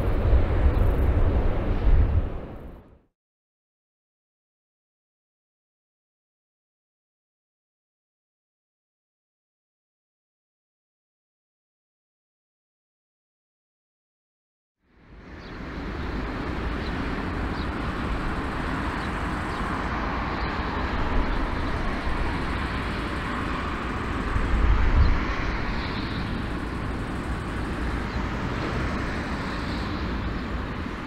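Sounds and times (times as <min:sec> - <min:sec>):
distant jet engines running: 0:00.0 - 0:03.0, 0:14.9 - 0:31.0.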